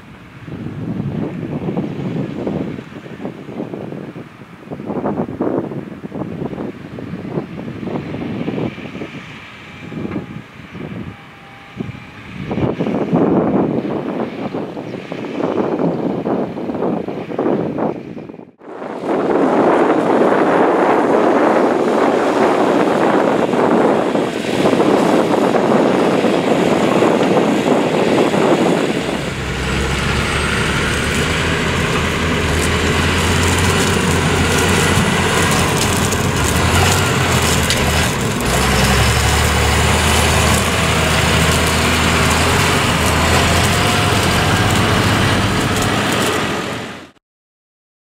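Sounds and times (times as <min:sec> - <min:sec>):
wind on microphone: 0:00.0 - 0:47.1
truck driving across field: 0:18.7 - 0:47.2
tractor diesel engine drone: 0:19.8 - 0:47.2.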